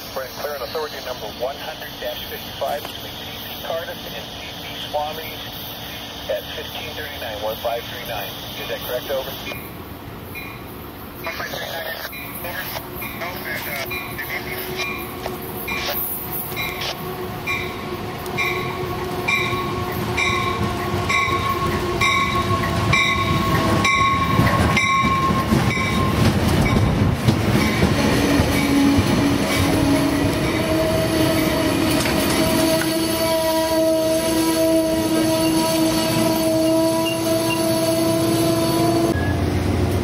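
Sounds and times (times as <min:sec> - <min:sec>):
train rumble and clatter: 0:00.0 - 0:40.0
train bell ringing: 0:10.3 - 0:10.7, 0:12.1 - 0:16.8, 0:17.4 - 0:17.8, 0:18.4 - 0:26.9
wheels and brakes squealing: 0:12.1 - 0:17.8, 0:27.7 - 0:39.5.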